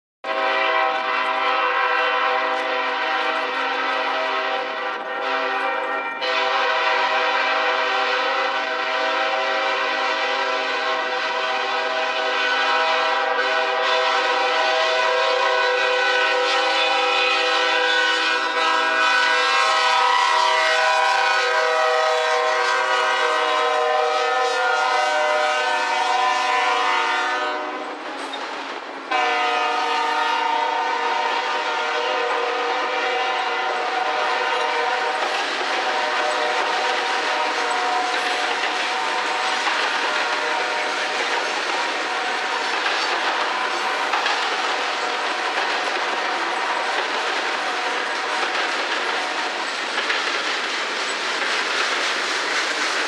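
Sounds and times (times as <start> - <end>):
locomotive air horn blasts: 0.2 - 28.0, 29.1 - 38.2, 38.8 - 41.1.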